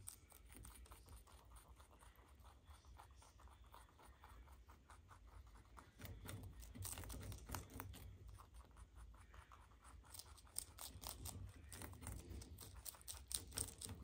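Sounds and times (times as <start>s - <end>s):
rabbits crunching leaves: 10.0s - 14.0s.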